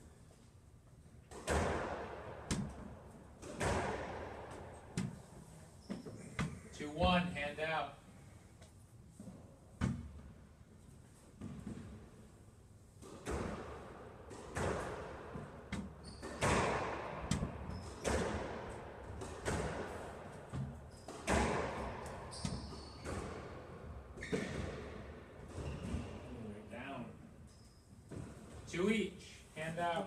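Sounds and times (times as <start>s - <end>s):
squash ball hits echoing: 1.3s - 5.2s, 13.0s - 26.2s
shoe squeaks: 5.6s - 6.7s, 16.0s - 16.6s, 17.6s - 18.2s, 20.8s - 21.4s, 22.2s - 23.5s, 24.2s - 24.7s, 25.5s - 26.4s, 27.4s - 28.1s.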